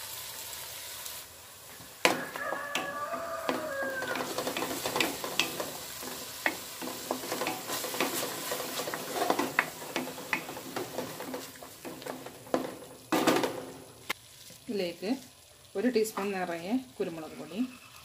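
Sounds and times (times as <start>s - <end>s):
frying sizzle: 0.0s - 18.0s
wooden spatula knocking against pan: 2.0s - 13.9s.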